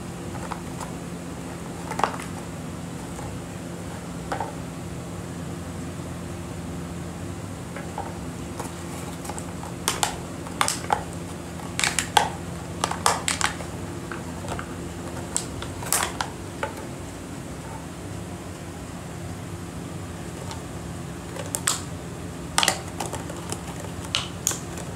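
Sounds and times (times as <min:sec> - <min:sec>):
steady low hum: 0:00.0 - 0:24.9
dog chewing plastic bottle: 0:01.8 - 0:03.4, 0:07.8 - 0:16.8, 0:21.3 - 0:21.9, 0:22.5 - 0:24.9.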